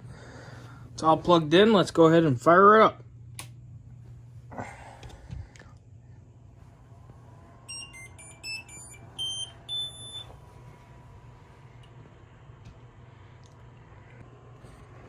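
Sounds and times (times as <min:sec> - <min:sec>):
steady low hum: 0:00.0 - 0:15.0
printer buzzer beeping tune: 0:07.7 - 0:10.3.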